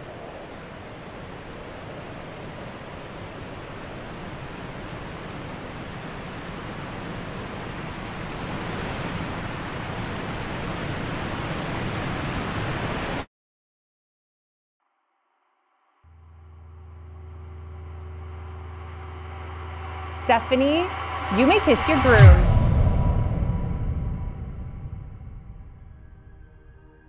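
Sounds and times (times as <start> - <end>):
steady rushing noise: 16.8 - 26.5.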